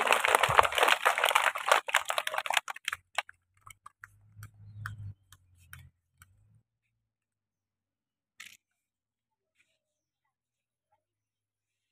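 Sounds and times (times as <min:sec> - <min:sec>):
children applauding: 0:00.0 - 0:03.2.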